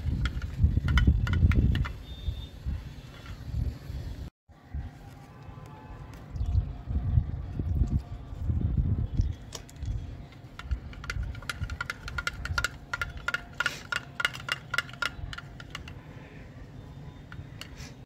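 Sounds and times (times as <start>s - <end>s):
metal spoon clicking on plastic dish: 10.6s - 16.0s.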